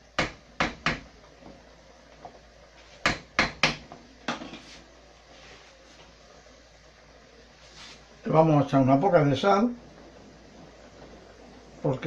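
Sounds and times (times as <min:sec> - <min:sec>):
wooden spoon knocking on a pan: 0:00.2 - 0:01.1, 0:03.0 - 0:04.6.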